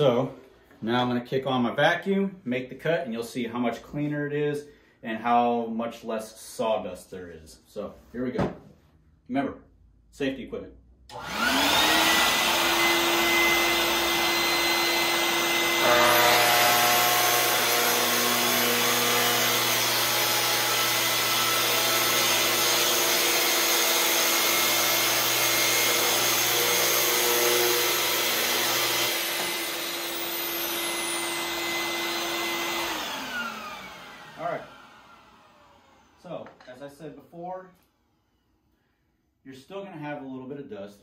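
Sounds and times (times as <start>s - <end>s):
shop vac running: 11.1s - 36.8s
circular saw cutting board: 11.1s - 36.9s.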